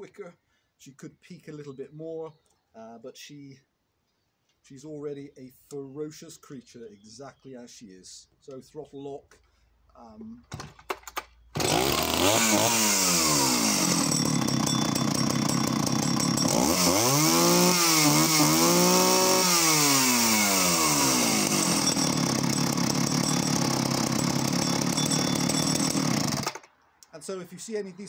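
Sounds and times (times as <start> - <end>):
starter cord pull: 10.5 - 11.7, 23.2 - 26.7
chainsaw idling and revving: 11.6 - 26.7.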